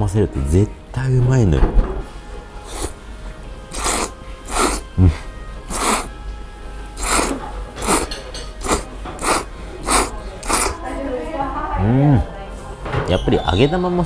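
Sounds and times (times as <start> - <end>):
faint background music: 0.0 - 14.0
person slurping noodles: 2.6 - 3.0, 3.7 - 6.1, 7.0 - 10.8.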